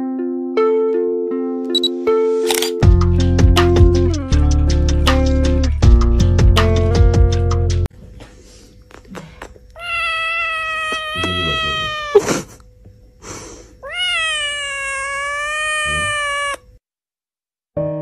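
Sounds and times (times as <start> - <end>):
sharp click: 1.8 - 2.8
kitten meowing: 9.8 - 12.2, 13.8 - 16.7.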